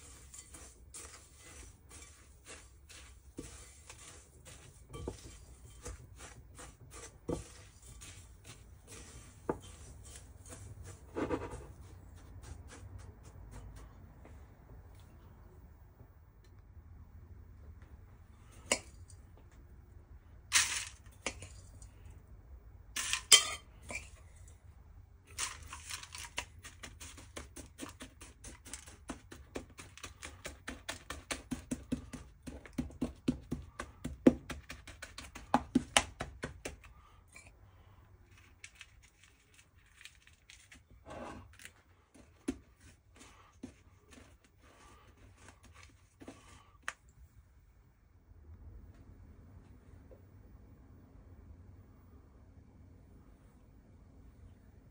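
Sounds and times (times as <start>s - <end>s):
spoon tapping and scraping: 0.0s - 11.8s, 18.6s - 19.1s, 20.6s - 21.9s, 23.0s - 24.2s
foil pan crinkling: 25.3s - 32.8s, 38.2s - 42.6s.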